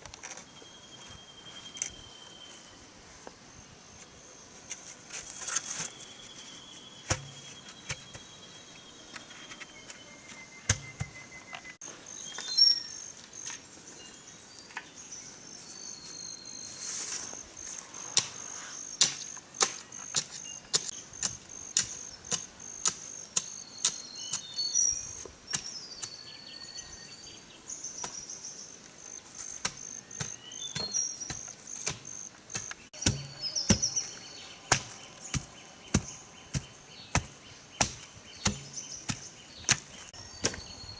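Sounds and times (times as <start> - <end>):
wood knocking on bamboo posts: 34.7 - 40.6.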